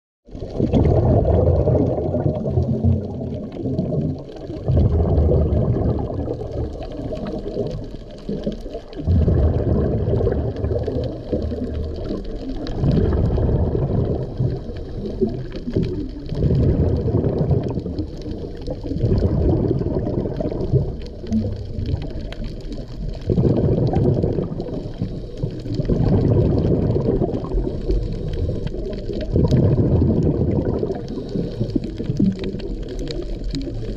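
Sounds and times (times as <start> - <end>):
underwater gurgling water and bubbles: 0.2 - 33.9.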